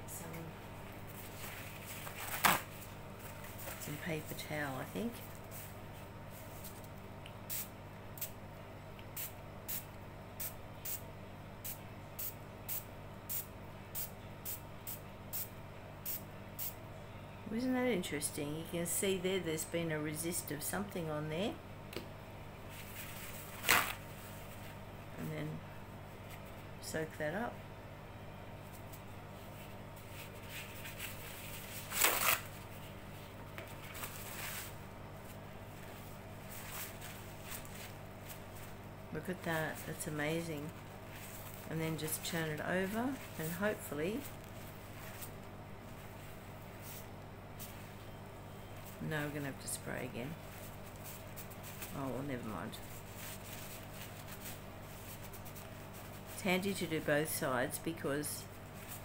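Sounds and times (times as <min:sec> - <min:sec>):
faint steady hum: 0:00.0 - 0:59.0
paper towel rustling and crinkling: 0:00.8 - 0:06.8, 0:22.6 - 0:24.8, 0:28.7 - 0:48.0, 0:48.8 - 0:57.1, 0:58.5 - 0:59.0.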